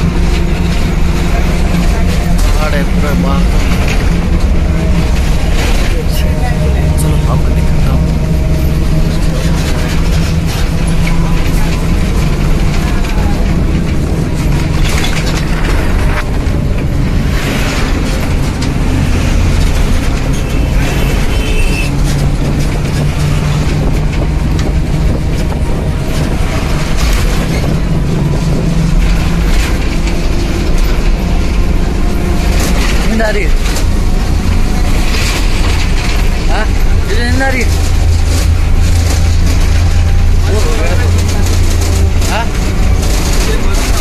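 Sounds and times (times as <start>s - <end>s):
bus engine rumbling: 0.0s - 44.0s.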